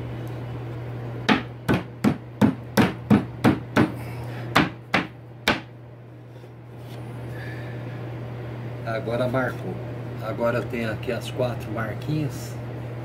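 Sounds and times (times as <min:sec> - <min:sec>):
sharp knocks on wood: 0:01.3 - 0:03.9, 0:04.5 - 0:05.7.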